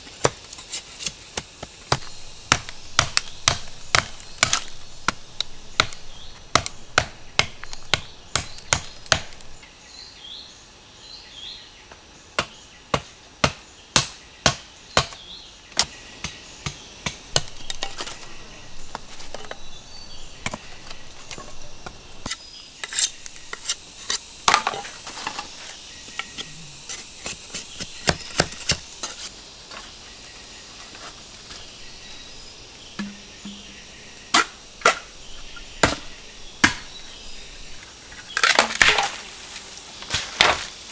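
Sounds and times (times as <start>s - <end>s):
machete chopping bamboo: 0.2s - 9.6s, 12.4s - 15.2s, 27.2s - 29.2s, 33.0s - 33.7s, 35.8s - 37.0s, 38.3s - 39.2s.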